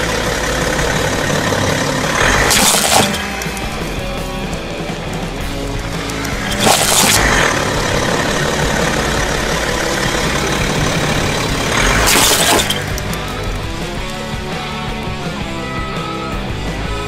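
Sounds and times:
car rolling on asphalt: 0:00.0 - 0:15.2
plastic cracking and crunching: 0:02.2 - 0:03.7, 0:06.0 - 0:07.5.

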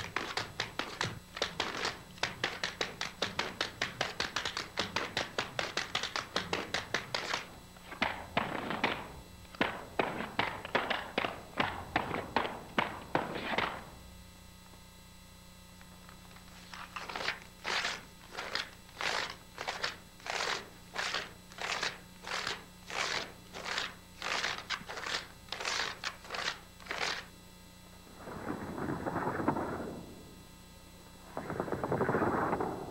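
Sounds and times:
tap shoes on wooden floor: 0:00.1 - 0:09.0.

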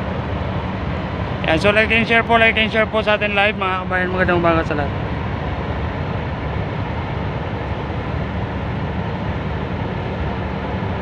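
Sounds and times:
low mechanical rumble: 0:00.0 - 0:11.0.

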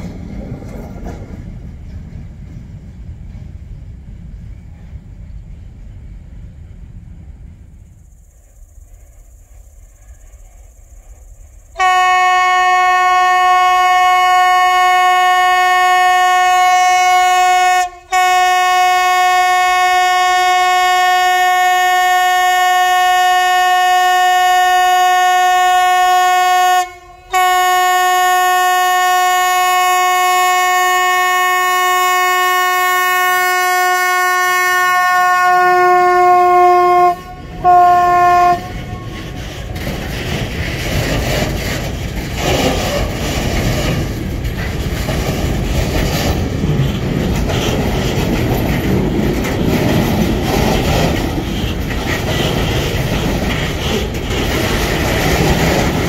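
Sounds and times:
train rumble: 0:00.0 - 0:56.0
locomotive horn blasts: 0:11.8 - 0:39.4.

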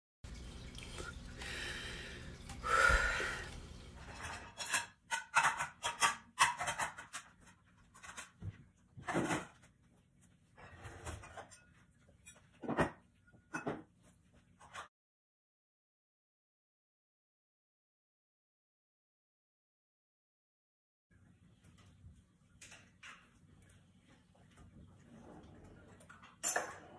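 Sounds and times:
dishes clinking and clattering: 0:02.3 - 0:09.7, 0:10.7 - 0:14.0, 0:24.4 - 0:26.9
plates clunking: 0:12.3 - 0:13.9.

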